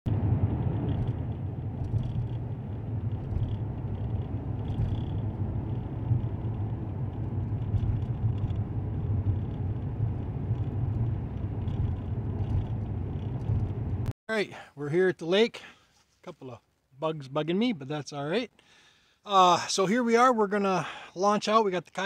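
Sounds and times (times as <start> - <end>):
car engine and tyre noise: 0.1 - 14.1.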